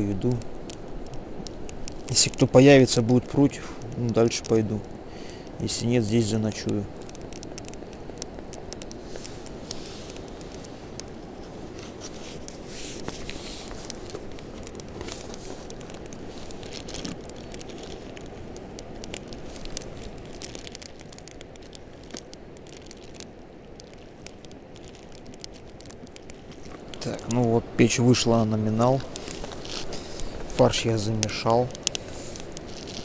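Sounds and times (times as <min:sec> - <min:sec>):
low background hiss: 0:00.0 - 0:33.0
paper and plastic crinkling: 0:07.0 - 0:33.0.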